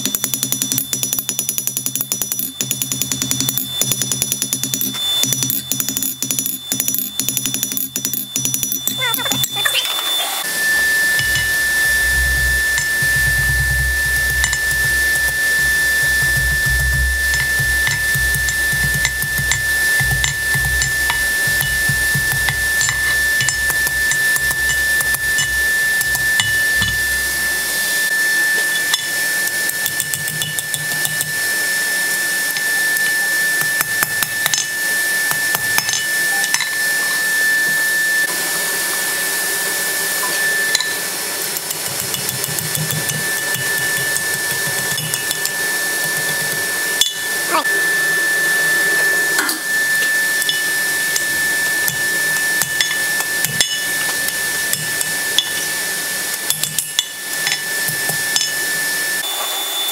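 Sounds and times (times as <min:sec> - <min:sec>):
steady hiss with high tone: 0:09.1 - 0:41.5
hammer blows on hot steel: 0:10.5 - 0:31.5.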